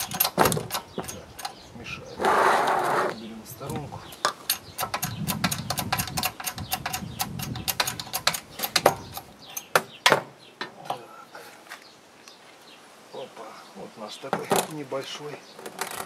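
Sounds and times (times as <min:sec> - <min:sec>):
metallic clicks of hydraulic jack: 0:00.0 - 0:01.6, 0:03.6 - 0:09.9.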